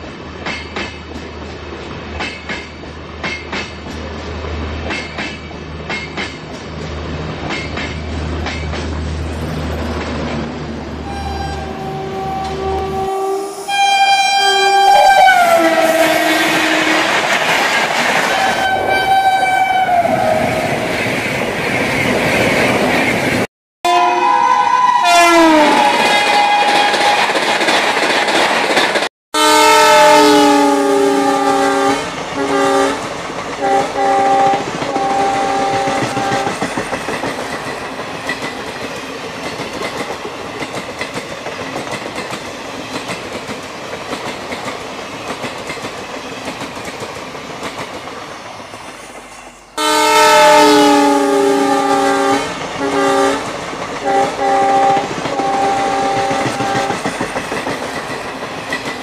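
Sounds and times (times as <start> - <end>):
train rumbling on rails: 0.0 - 23.5, 24.2 - 29.1, 29.8 - 59.0
locomotive horn blasts: 11.0 - 17.2, 18.3 - 20.5, 23.8 - 27.2, 29.4 - 33.0, 33.6 - 36.6, 49.8 - 53.4, 54.0 - 56.9.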